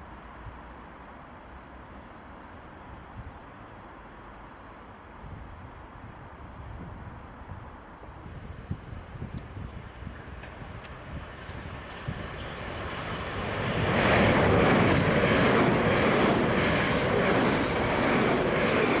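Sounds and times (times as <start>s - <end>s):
wind buffeting microphone: 5.2s - 19.0s
train passing at speed: 7.2s - 19.0s.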